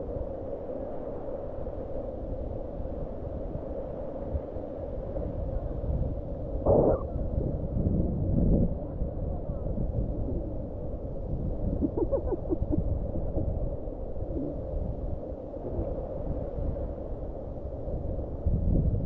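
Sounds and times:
wind buffeting microphone: 5.0 - 19.0.

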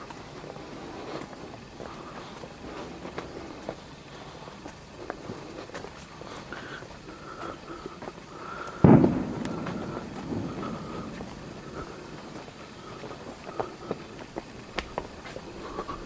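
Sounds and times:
sudden bang: 8.8 - 10.8
faint clicks: 13.6 - 15.4.

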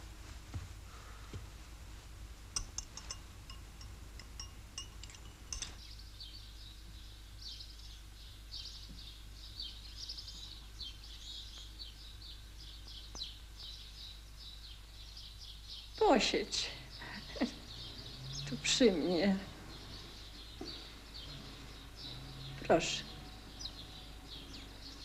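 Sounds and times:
crockery clinking: 2.6 - 5.9
birds chirping: 2.6 - 25.0.

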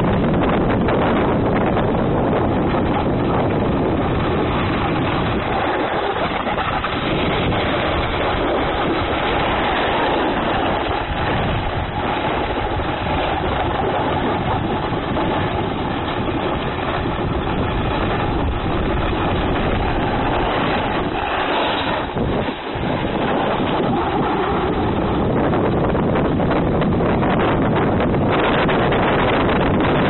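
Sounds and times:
wind on microphone: 0.0 - 30.0
ski edges scraping snow: 19.9 - 24.3.

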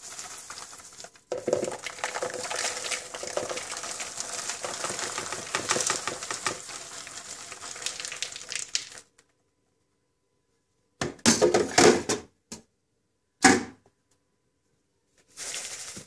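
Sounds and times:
popcorn pouring into a bowl: 0.0 - 9.1, 15.3 - 16.0.

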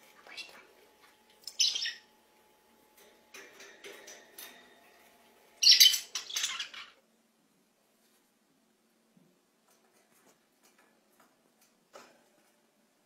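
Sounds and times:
budgerigars chirping and squawking: 0.2 - 0.8, 1.4 - 2.1, 5.6 - 7.0.

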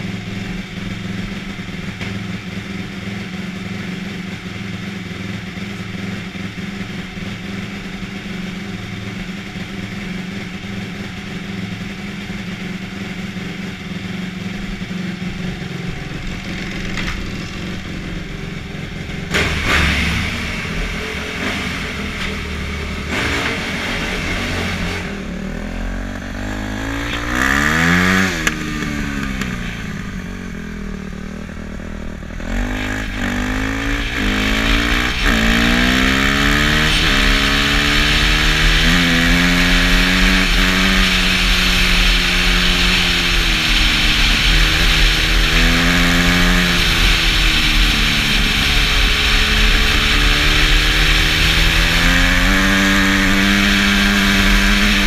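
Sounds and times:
dirt bike engine revving: 12.6 - 55.0.

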